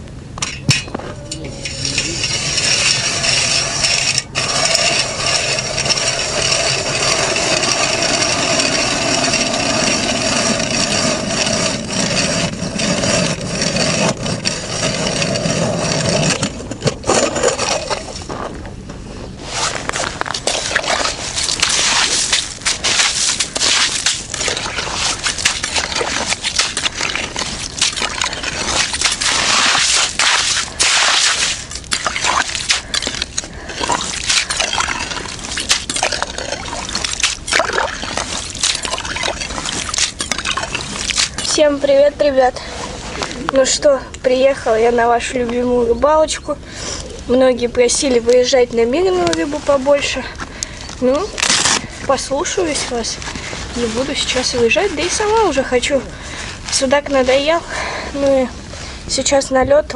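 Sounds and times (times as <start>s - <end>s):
crackling scrape of ice and slush: 1.0s - 59.5s
ice auger grinding into ice: 1.5s - 18.3s, 19.5s - 43.4s.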